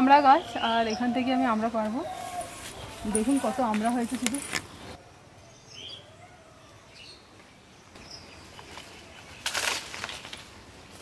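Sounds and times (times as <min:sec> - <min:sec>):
rustle of shaken leaves and branches: 0:01.6 - 0:05.0, 0:08.5 - 0:11.0.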